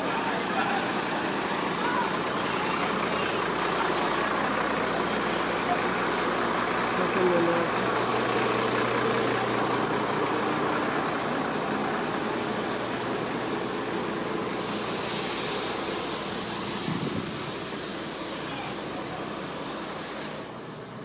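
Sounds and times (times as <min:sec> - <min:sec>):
vehicle engine and road noise: 0:00.0 - 0:21.0
loud hiss: 0:14.5 - 0:20.8.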